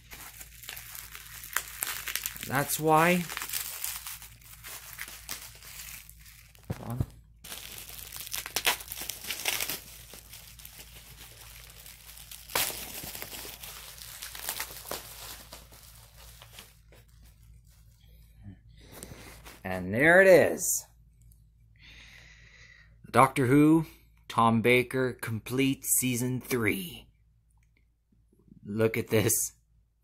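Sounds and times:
package wrapping crinkling and ripping: 0.0 - 17.5.

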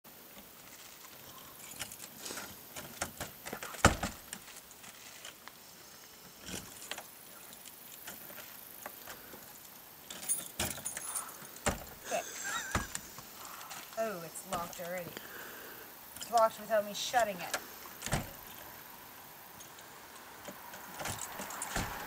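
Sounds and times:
keys jangling against lock: 10.1 - 11.9, 20.9 - 22.0.

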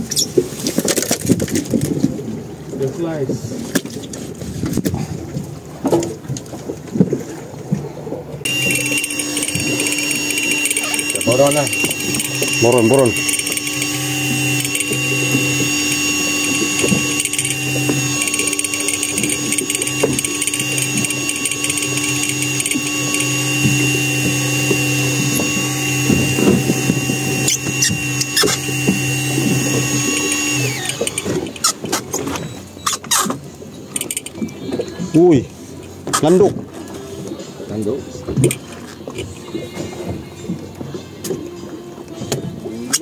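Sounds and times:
fishing reel motor whining: 8.4 - 33.2, 33.8 - 35.3, 38.3 - 39.3.

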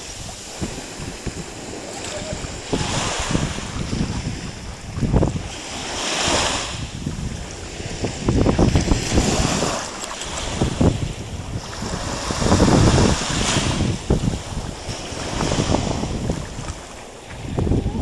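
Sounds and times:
shallow sea water washing: 0.0 - 18.0
wind buffeting microphone: 0.0 - 18.0
dogs sloshing through water: 8.7 - 12.4, 14.3 - 17.5.

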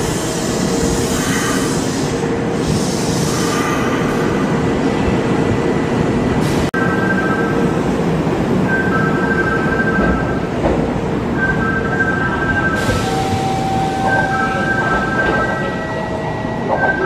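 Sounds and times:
electric trains rumbling: 0.0 - 17.0.

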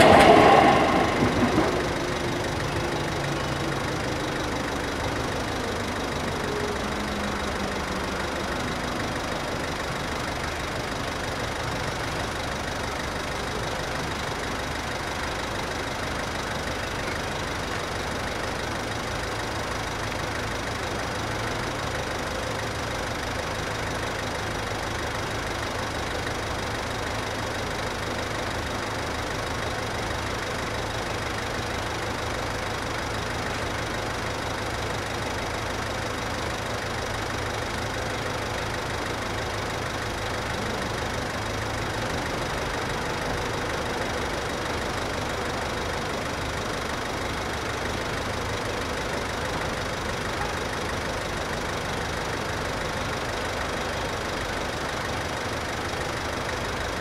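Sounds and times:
train passing: 0.0 - 4.3.

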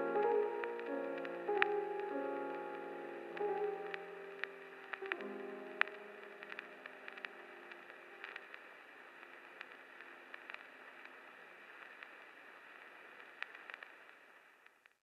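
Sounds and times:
soundtrack music held notes: 0.0 - 8.4
static hiss with crackles: 0.0 - 15.0.

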